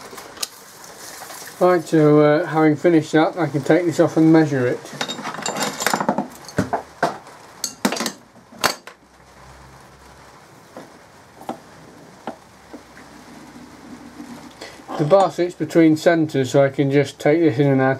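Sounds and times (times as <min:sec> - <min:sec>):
metallic clinks and knocks: 0:05.0 - 0:06.8.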